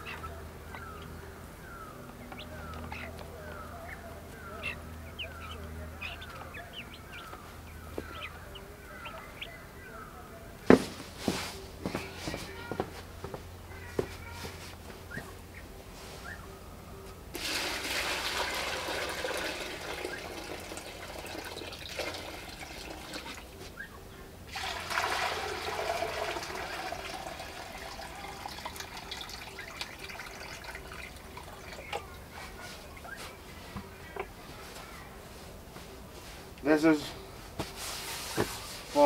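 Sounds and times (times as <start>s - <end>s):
liquid pouring and splashing: 17.4s - 23.6s, 24.5s - 32.0s.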